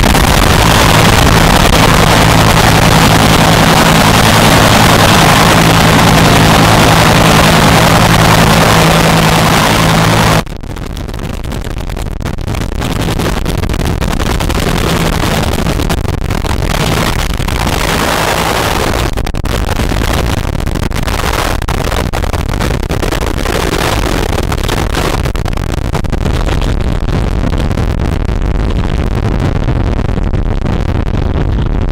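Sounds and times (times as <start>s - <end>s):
helicopter turbine and rotor: 0.0s - 10.4s.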